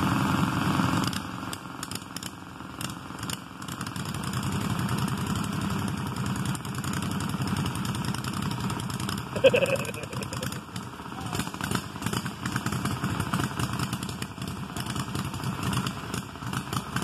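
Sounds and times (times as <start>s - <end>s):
lawn tractor engines running: 0.0s - 17.0s.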